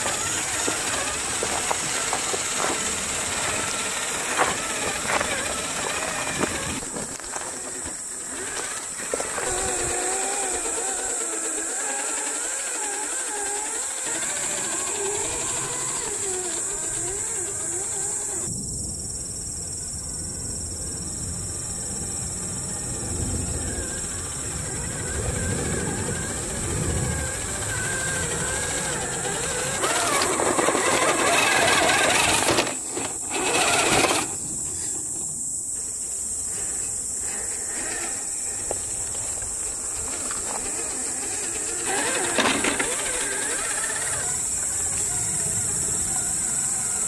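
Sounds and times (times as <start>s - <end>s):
electric motor whining: 0.0s - 18.5s, 21.0s - 47.0s
rough crawling noise: 0.0s - 18.5s, 26.3s - 45.3s
steady high hiss: 0.0s - 47.0s.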